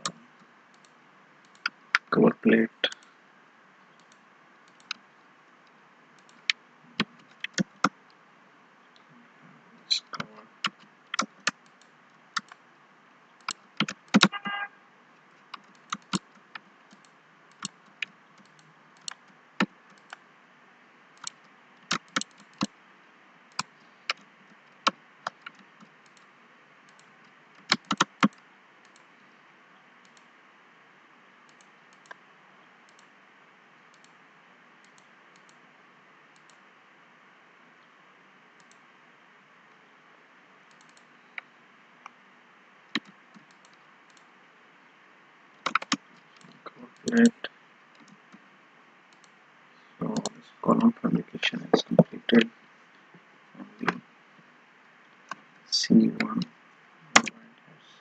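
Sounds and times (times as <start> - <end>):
keyboard and mouse clicking: 0.0 - 2.1, 4.0 - 5.0, 6.2 - 8.0, 9.9 - 12.6, 13.4 - 14.4, 15.5 - 20.2, 21.2 - 22.7, 23.5 - 26.3, 26.9 - 29.1, 31.5 - 32.2, 32.9 - 33.1, 33.9 - 34.2, 34.8 - 35.6, 36.4 - 36.6, 38.6 - 38.8, 40.7 - 41.5, 42.9 - 44.3, 45.6 - 47.2, 49.1 - 49.4
faint steady hiss: 0.0 - 58.0.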